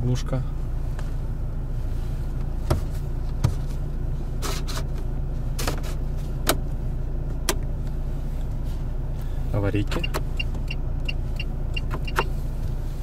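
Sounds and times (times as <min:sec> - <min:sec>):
engine idling hum: 0:00.0 - 0:13.0.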